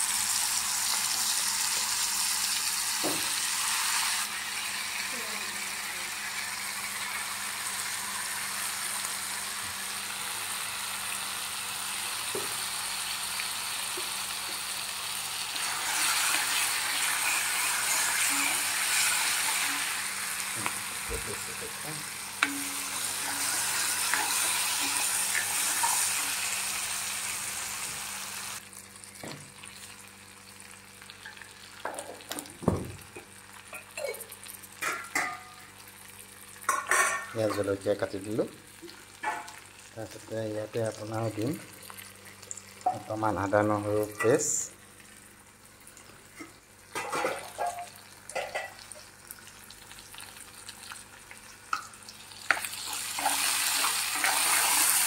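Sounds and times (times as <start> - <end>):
paste sizzling in hot oil: 0.0 - 28.8, 48.2 - 55.0.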